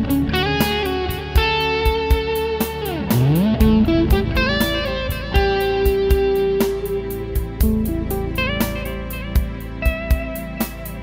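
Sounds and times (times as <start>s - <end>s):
overdriven electric guitar: 0.0s - 11.0s.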